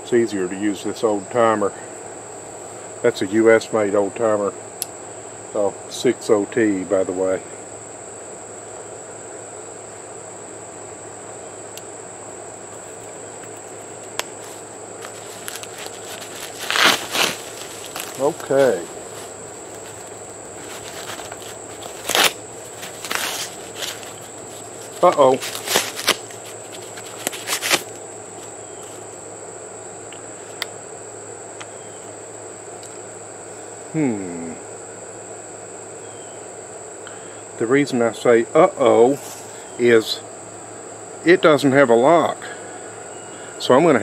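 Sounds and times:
insect chorus: 0.0 - 44.0
clicks and rustles: 12.7 - 29.1.

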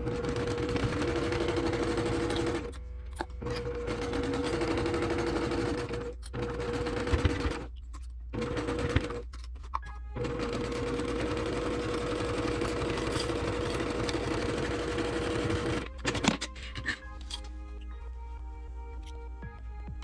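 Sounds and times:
sewing machine stitching: 0.0 - 2.8, 3.4 - 9.3, 10.2 - 17.0.

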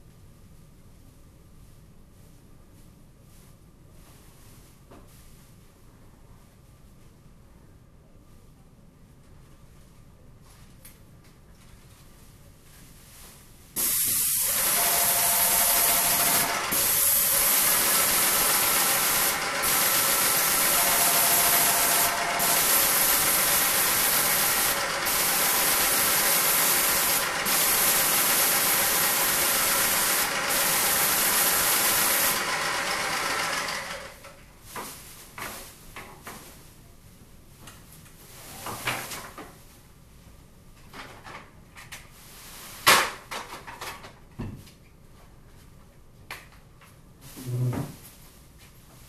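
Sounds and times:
paint sprayer hissing: 13.8 - 34.2.

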